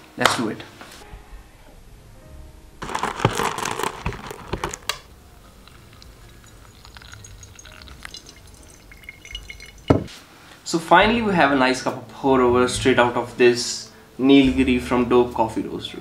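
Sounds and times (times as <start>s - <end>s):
coffee beans rattling out of bag: 2.8s - 10.0s
water pouring from kettle: 5.5s - 10.2s.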